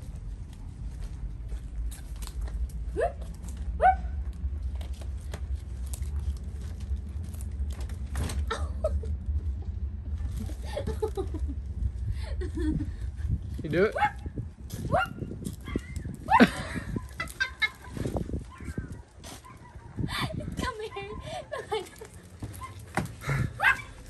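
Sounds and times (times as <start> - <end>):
steady low rumble: 0.0 - 24.0
flip-flop footsteps on concrete: 21.8 - 23.9.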